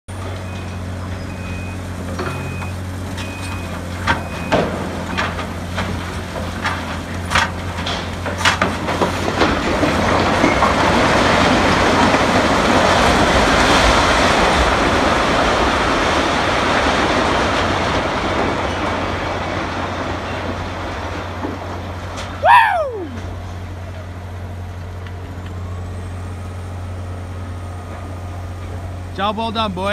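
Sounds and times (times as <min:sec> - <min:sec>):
diesel engine running: 0:00.1 - 0:29.9
building collapsing rumble: 0:08.6 - 0:23.9.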